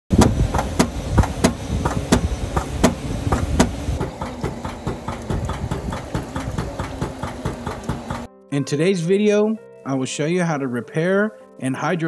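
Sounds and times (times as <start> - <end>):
machine rumbling and knocking: 0.1 - 8.3.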